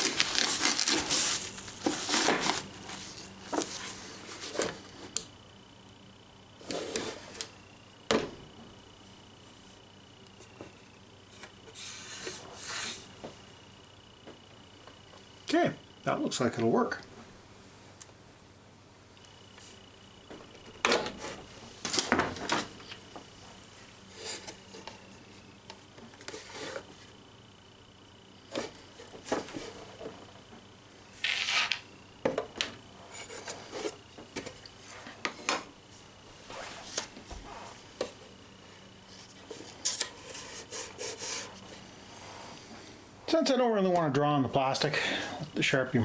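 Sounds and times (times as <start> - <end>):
nylon bag rustling: 0.0 - 3.3.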